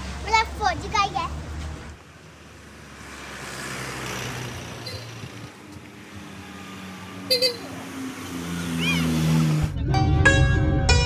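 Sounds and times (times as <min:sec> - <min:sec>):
short horn beeps: 0:04.8 - 0:05.2, 0:07.3 - 0:07.7.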